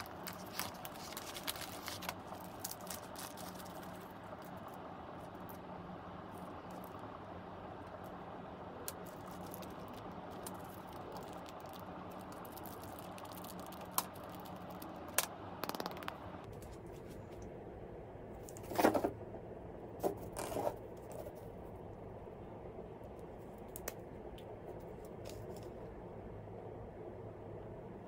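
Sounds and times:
plastic bags crinkling: 0.0s - 4.7s, 8.9s - 15.0s
steady low hum: 0.0s - 28.0s.

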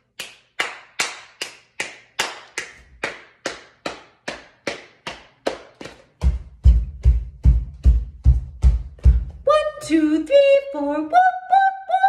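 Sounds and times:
hand claps in steady beat: 0.0s - 9.4s.

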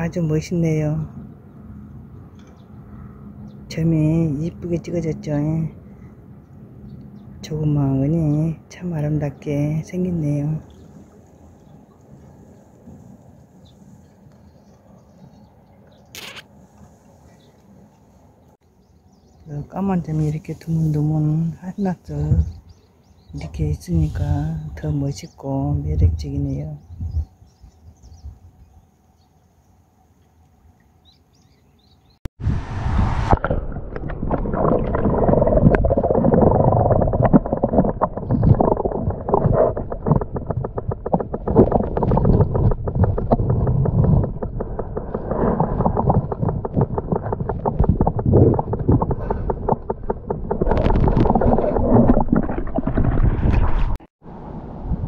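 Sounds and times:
underwater stream gurgling: 32.5s - 54.0s
rapid crackle: 33.4s - 54.0s.

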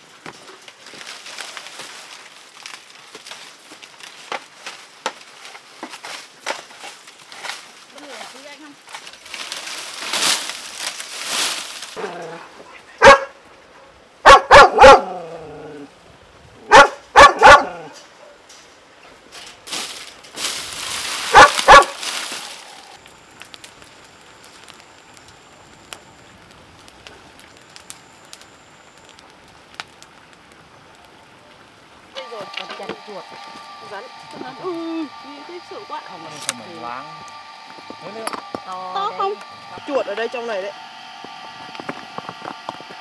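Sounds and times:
dry palm fronds rustling: 0.0s - 43.0s
dog barking: 13.0s - 15.3s, 16.7s - 18.4s, 21.3s - 22.0s.

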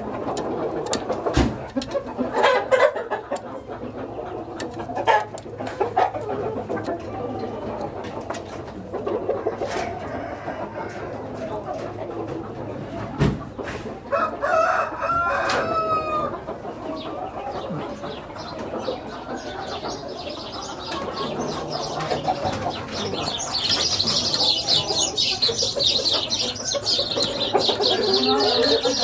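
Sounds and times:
rooster crowing: 9.8s - 11.2s, 14.1s - 16.3s
high chattering chirps: 17.6s - 29.0s.

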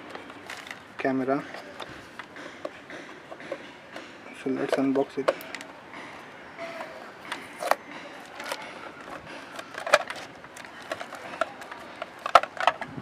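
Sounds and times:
plastic packaging crinkling: 7.5s - 12.9s.

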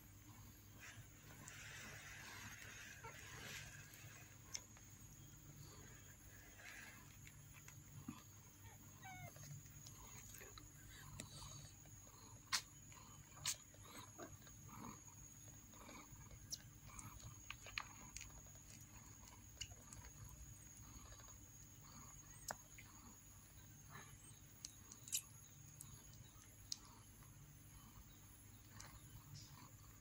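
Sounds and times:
steady low hum: 0.0s - 30.0s
kittens squeaking: 8.6s - 10.6s.

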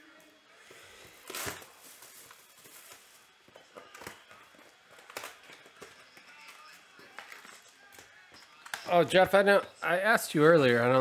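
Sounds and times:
plastic wrap tearing: 1.1s - 8.8s.

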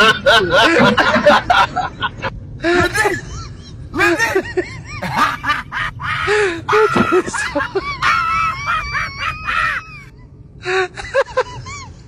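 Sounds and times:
high-pitched shrieking laughter: 2.9s - 10.2s.

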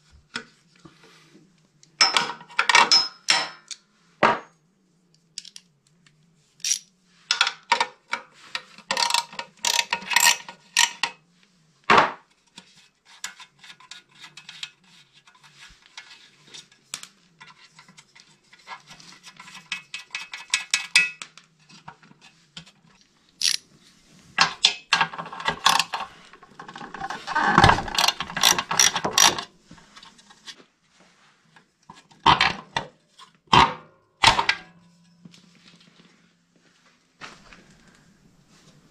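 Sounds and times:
socket clinking on metal: 6.6s - 6.9s, 23.4s - 23.6s
socket ratchet clicking: 23.4s - 23.6s, 28.0s - 29.4s.

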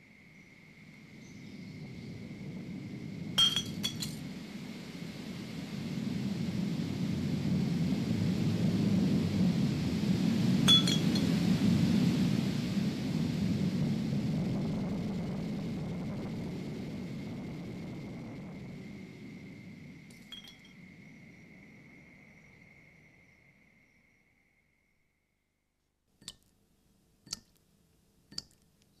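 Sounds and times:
sharp metallic clink: 3.4s - 4.2s, 10.7s - 11.3s, 20.1s - 20.7s
thin high ringing tone: 3.4s - 4.3s, 10.7s - 11.4s, 20.0s - 25.4s.

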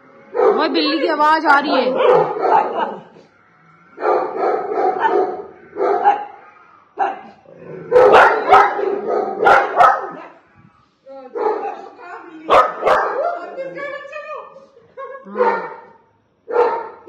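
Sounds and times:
dog barking: 0.3s - 1.0s, 1.6s - 3.3s, 4.0s - 6.4s, 7.0s - 10.3s, 11.3s - 13.4s, 15.4s - 17.0s.

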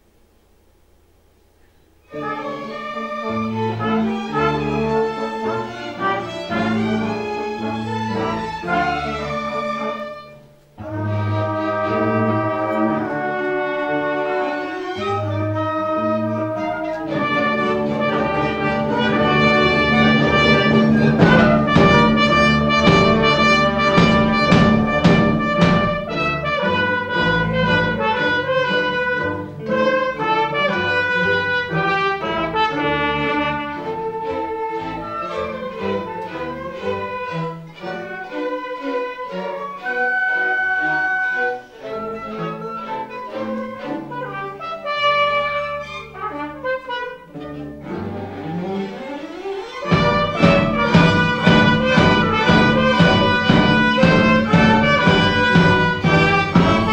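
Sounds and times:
orchestra playing live: 2.0s - 56.9s
trumpets: 2.0s - 56.9s
drum strikes: 17.1s - 28.0s, 49.8s - 56.9s.

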